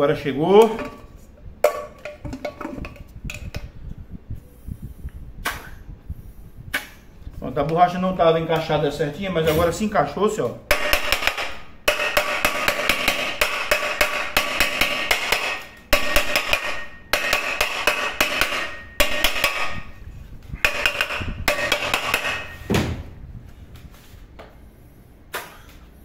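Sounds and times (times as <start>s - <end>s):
hammering on metal pot: 10.7s - 20.0s, 20.6s - 22.6s
dull thud: 22.6s - 23.2s.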